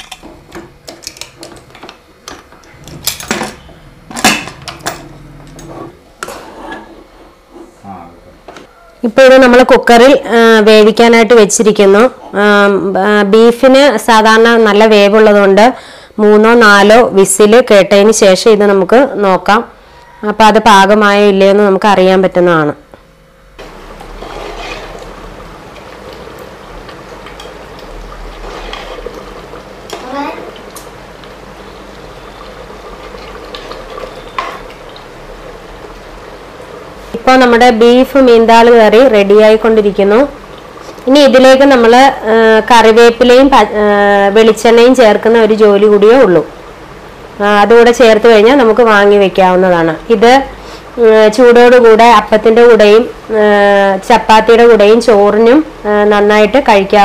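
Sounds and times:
metal lid clanking: 2.7 - 6.4
curry bubbling: 23.6 - 43.2.

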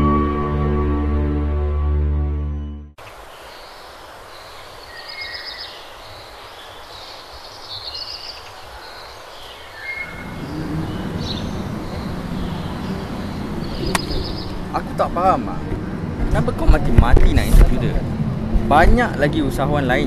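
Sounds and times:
small birds chirping: 3.0 - 15.1
background hiss: 3.0 - 15.5
low traffic rumble: 9.8 - 20.0.

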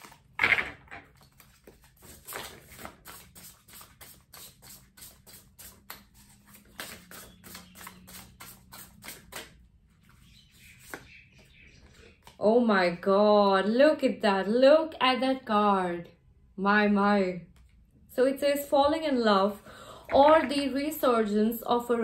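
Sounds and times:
cards being shuffled by hand: 0.0 - 11.1.

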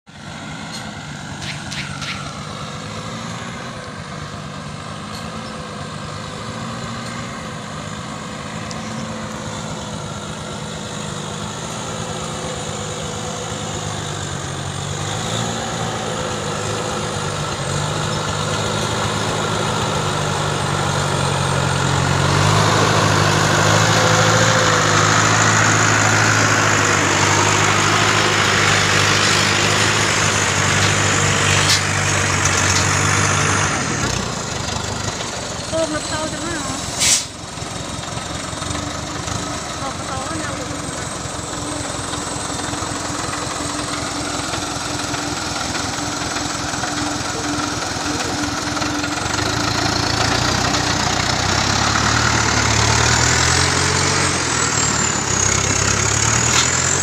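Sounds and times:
truck engine running: 0.1 - 57.0.

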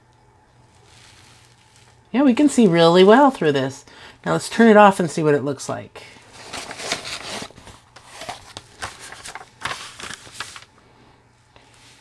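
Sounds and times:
plastic cover rustling and scraping: 0.6 - 3.4, 6.2 - 10.7.

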